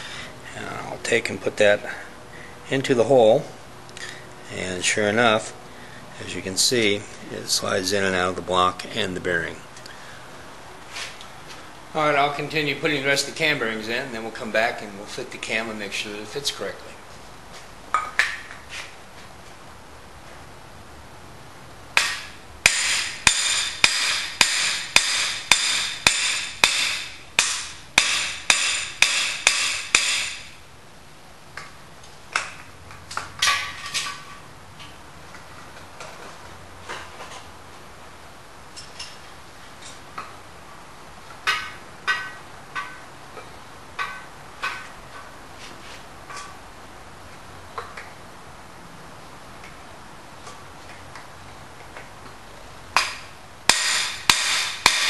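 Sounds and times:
ringing metallic hammer strikes: 0:22.0 - 0:30.5, 0:53.7 - 0:55.0.

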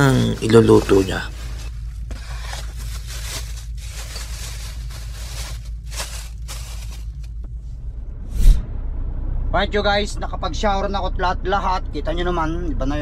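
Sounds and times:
plastic bag crinkling: 0:00.0 - 0:07.4
steady low hum: 0:00.0 - 0:13.0.

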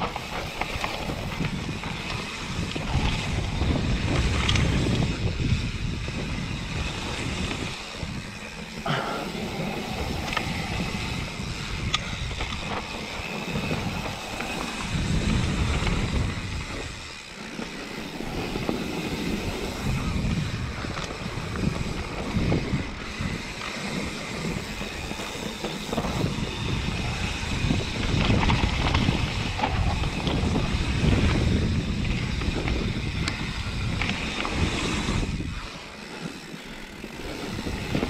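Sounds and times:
tyres rolling over dirt and stones: 0:00.0 - 0:05.4
stones clicking and bike rattling: 0:00.0 - 0:38.0
wind rushing over microphone: 0:00.0 - 0:38.0.

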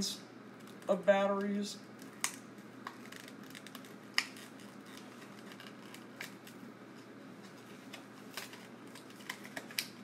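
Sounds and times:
batteries and packaging clicking: 0:07.9 - 0:10.0.

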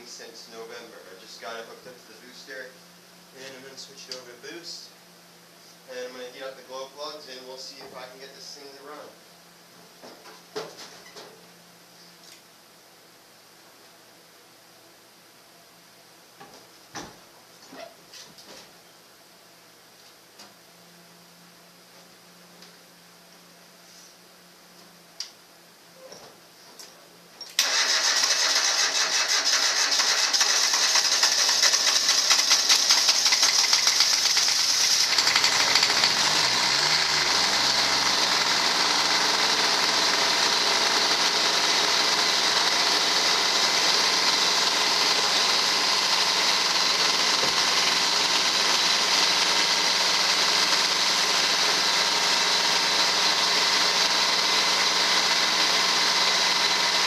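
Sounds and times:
diesel engine running: 0:27.6 - 0:57.0
starter motor cranking: 0:27.6 - 0:57.0.

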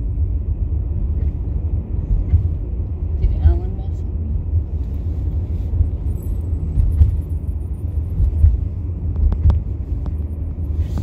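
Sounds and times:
bus engine rumble: 0:00.0 - 0:11.0
clicks from bus body: 0:01.1 - 0:01.5, 0:06.7 - 0:07.5, 0:08.1 - 0:11.0.

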